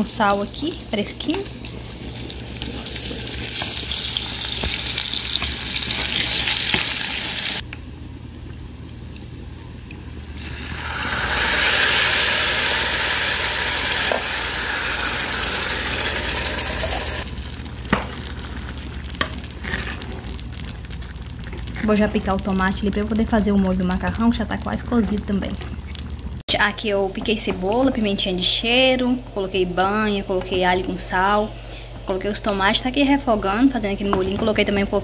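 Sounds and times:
food sizzling in a pan: 1.1s - 7.6s, 10.2s - 22.0s.

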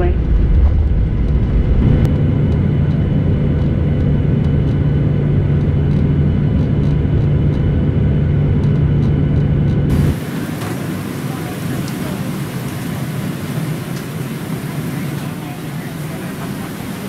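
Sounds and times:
jet engines idling: 0.0s - 17.0s
rush of air: 9.9s - 14.5s
hissy cabin background: 9.9s - 17.0s.

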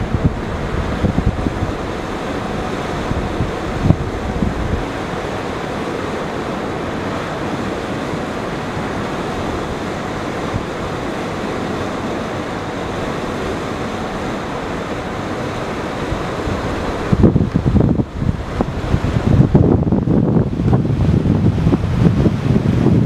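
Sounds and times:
wind rushing: 0.0s - 5.8s, 15.5s - 23.0s
sea water rushing: 0.0s - 23.0s.

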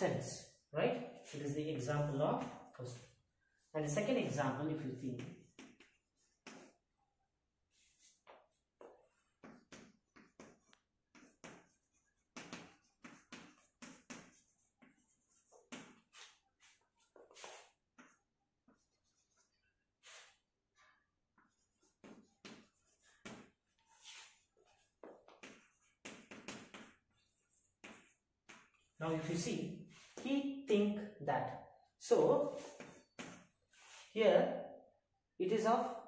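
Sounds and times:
chalk scratching on a chalkboard: 1.0s - 1.6s, 4.0s - 6.8s, 7.7s - 20.4s, 21.4s - 30.3s, 32.4s - 34.2s.

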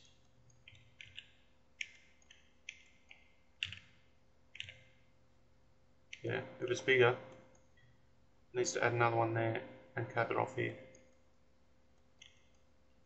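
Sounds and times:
computer mouse clicking: 0.0s - 5.0s, 12.0s - 12.7s.

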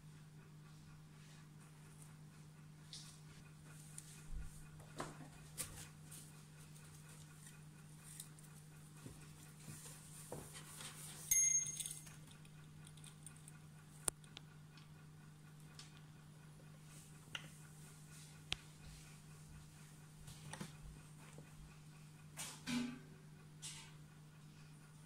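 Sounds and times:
clatter with ringing tone: 11.3s - 13.8s.

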